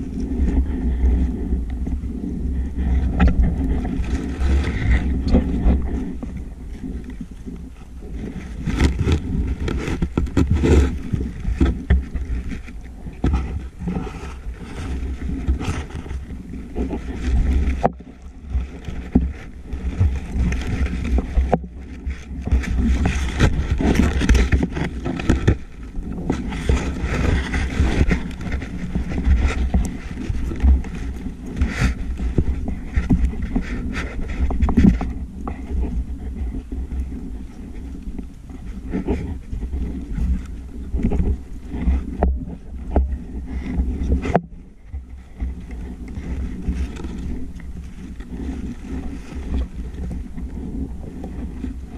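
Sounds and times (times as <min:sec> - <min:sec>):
underwater low rumble: 0:00.0 - 0:51.9
clicks and knocks of handling: 0:03.0 - 0:37.0.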